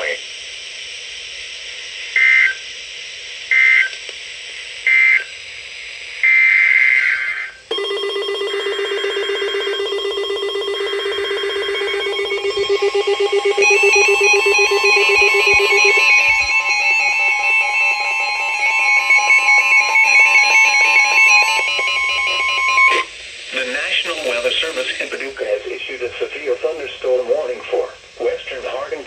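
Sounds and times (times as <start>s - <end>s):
electronic alarm tone: 7.7s - 23.1s
high electronic data screeches: 8.6s - 25.1s.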